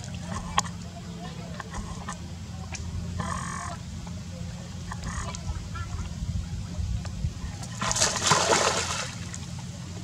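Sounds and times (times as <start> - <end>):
water splashing: 7.6 - 9.6.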